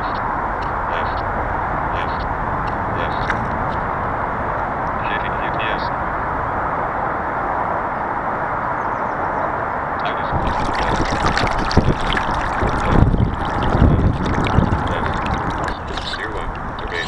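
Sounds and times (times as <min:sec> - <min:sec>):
wind buffeting microphone: 0:00.0 - 0:17.0
water sloshing against hull: 0:10.4 - 0:17.0.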